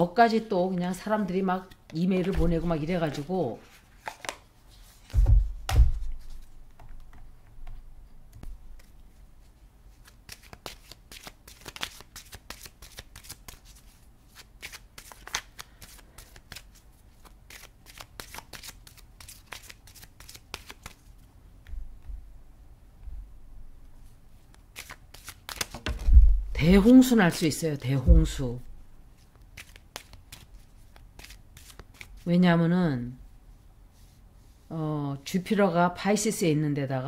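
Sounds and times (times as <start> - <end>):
cards being shuffled: 1.6 - 7.3, 8.4 - 9.1, 9.9 - 21.1, 24.4 - 26.3, 29.2 - 32.3.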